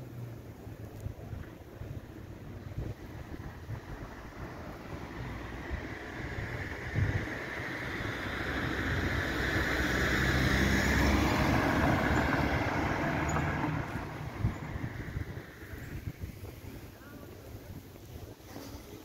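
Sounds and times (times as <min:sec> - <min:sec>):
car driving past: 0:03.4 - 0:15.8.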